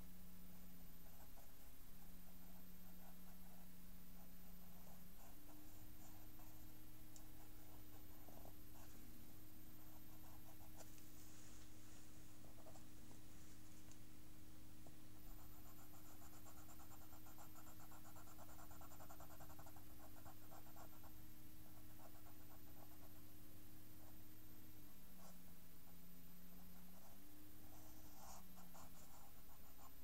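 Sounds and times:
steady low hum: 0:00.0 - 0:30.0
pencil scratching on paper: 0:09.7 - 0:11.0, 0:15.2 - 0:23.3, 0:25.2 - 0:30.0.

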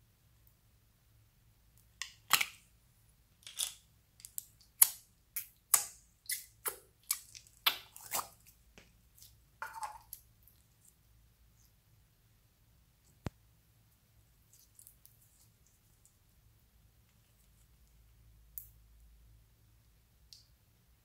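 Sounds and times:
slime crackles and squelches: 0:03.6 - 0:11.0, 0:14.4 - 0:18.1.

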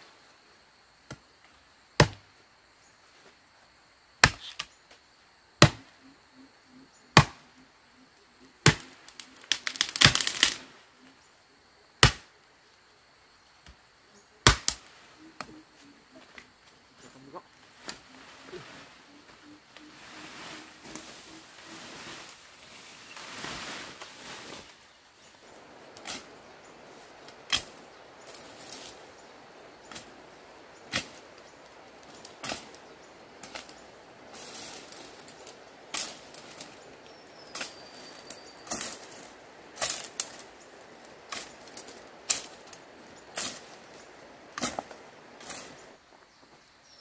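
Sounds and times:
machete chopping brush: 0:02.0 - 0:02.2, 0:04.2 - 0:04.7, 0:05.6 - 0:05.9, 0:07.2 - 0:07.5, 0:08.6 - 0:10.7, 0:12.0 - 0:12.3, 0:14.4 - 0:15.6, 0:27.3 - 0:29.0, 0:29.9 - 0:30.2, 0:30.9 - 0:31.4, 0:32.0 - 0:33.8, 0:37.5 - 0:40.5, 0:44.6 - 0:45.8
leafy branches rustling: 0:07.4 - 0:11.5, 0:12.2 - 0:46.8.

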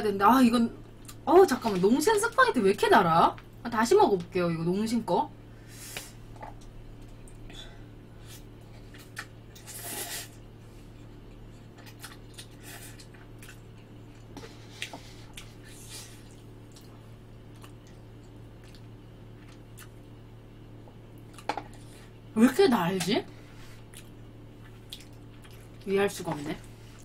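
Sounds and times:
steady low hum: 0:00.0 - 0:27.0
person slurping noodles: 0:09.6 - 0:10.4.

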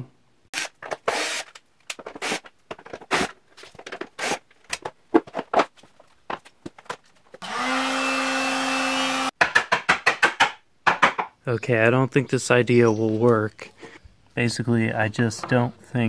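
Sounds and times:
drill whining: 0:00.6 - 0:01.6, 0:07.4 - 0:09.3
plastic parts clattering: 0:00.8 - 0:07.1.

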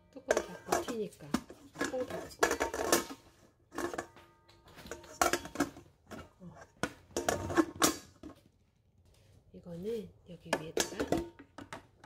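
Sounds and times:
plastic lid clattering on steel bowl: 0:00.3 - 0:08.4, 0:10.5 - 0:12.0.

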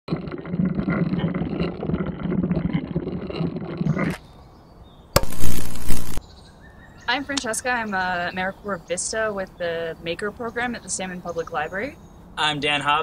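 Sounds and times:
loud electrical buzz: 0:05.2 - 0:06.2.

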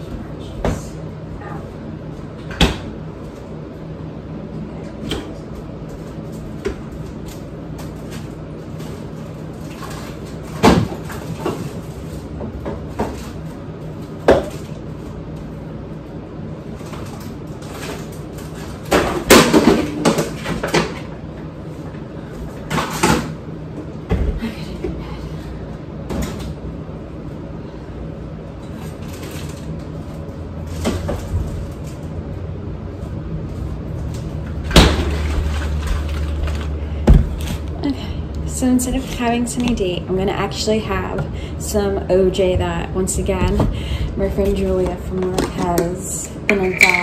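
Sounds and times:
steady low hum: 0:00.0 - 0:47.0
items knocked and set down: 0:46.5 - 0:47.0.

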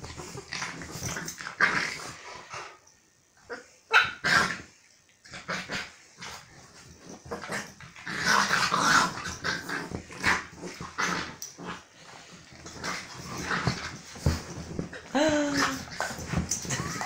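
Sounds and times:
dogs growling: 0:00.0 - 0:02.8, 0:07.1 - 0:17.0
scuffling on sofa cushion: 0:12.3 - 0:16.8.

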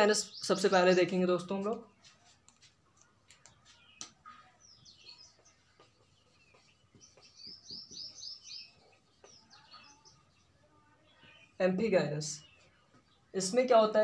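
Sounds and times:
marker writing on whiteboard: 0:02.0 - 0:10.0
high marker chirps: 0:02.0 - 0:10.4.

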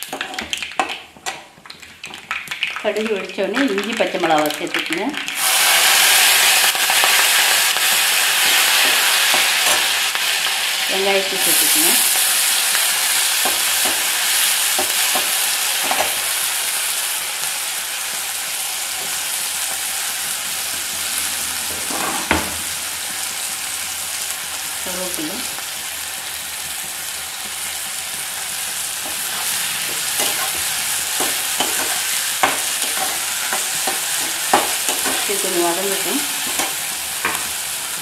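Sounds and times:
food sizzling in hot oil: 0:00.0 - 0:38.0
spatula knocking on pan: 0:29.9 - 0:35.3.

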